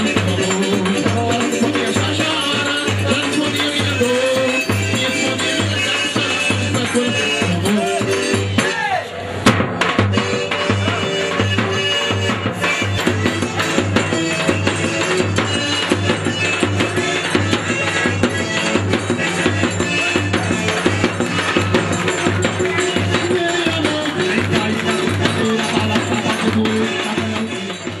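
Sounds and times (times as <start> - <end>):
quick rattling percussion: 0.0 - 8.7, 9.5 - 28.0
drum: 0.0 - 28.0.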